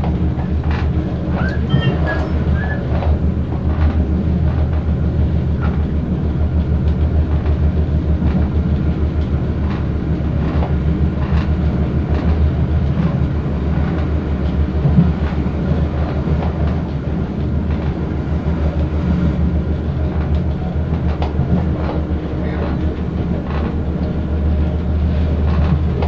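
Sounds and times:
train engine and wheels drone: 0.0 - 26.0
wheels clicking on track: 0.0 - 26.0.

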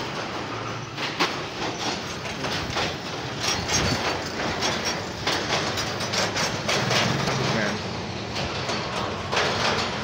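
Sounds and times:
clanks from metal grating deck: 0.0 - 10.0.

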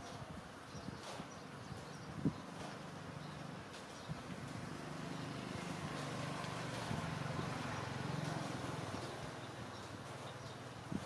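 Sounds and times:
low engine hum: 2.6 - 11.0.

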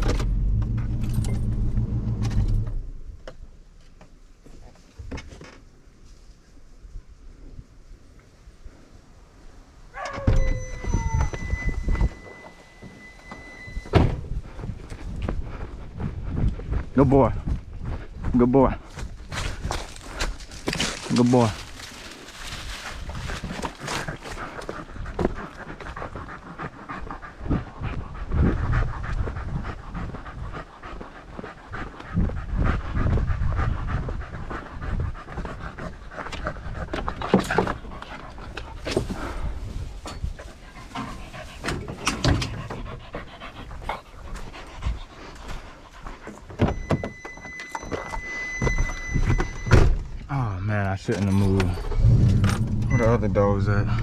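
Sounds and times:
dog panting hard: 14.4 - 21.0, 21.9 - 46.9.

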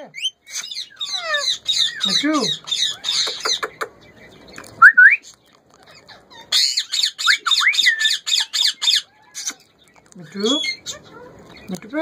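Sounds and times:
parakeet squawks: 0.2 - 3.8.

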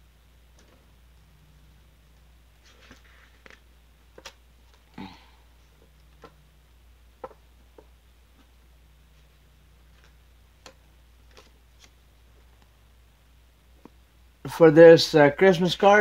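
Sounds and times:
low steady hum: 0.0 - 16.0
paper card rustle: 2.5 - 4.9, 9.2 - 12.6.

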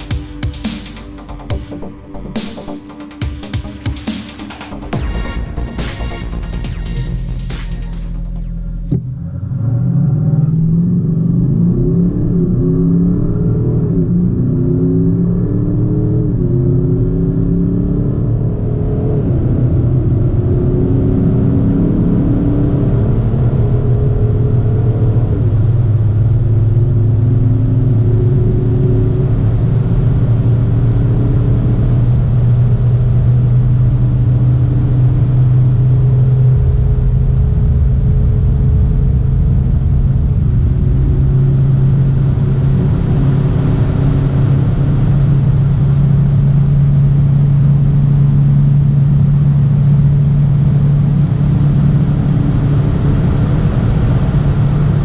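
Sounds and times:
rushing noise: 0.0 - 9.8
diesel engine accelerating: 0.0 - 55.0.

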